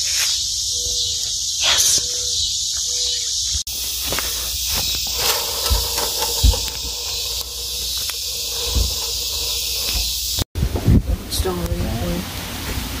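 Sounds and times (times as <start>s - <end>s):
steady high hiss: 3.7s - 10.5s.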